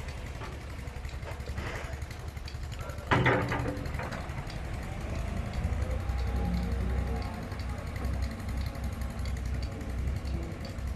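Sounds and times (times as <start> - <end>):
tractor diesel engine rumbling: 0.0 - 10.9.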